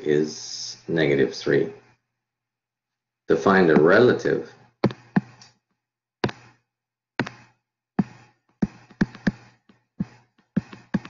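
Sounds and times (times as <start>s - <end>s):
stylus tapping on tablet screen: 4.8s - 5.6s, 6.2s - 6.6s, 7.2s - 11.0s.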